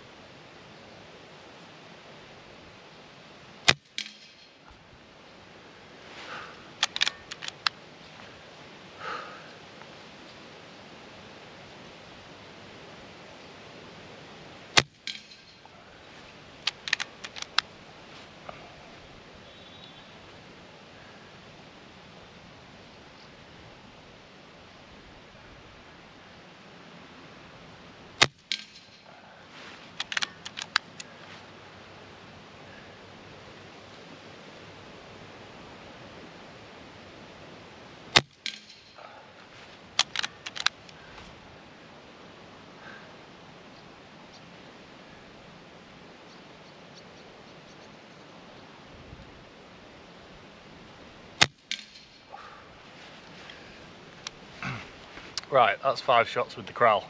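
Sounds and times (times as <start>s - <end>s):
metallic clicks of rifle lever: 3.7s - 4.5s, 6.8s - 7.8s, 14.8s - 15.7s, 16.6s - 17.7s, 28.2s - 29.0s, 29.9s - 31.1s, 38.2s - 39.0s, 40.0s - 41.0s.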